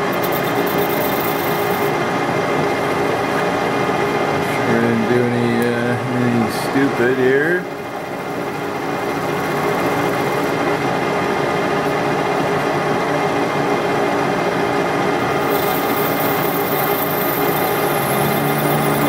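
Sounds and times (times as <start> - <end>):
metal lathe running: 0.0 - 19.0.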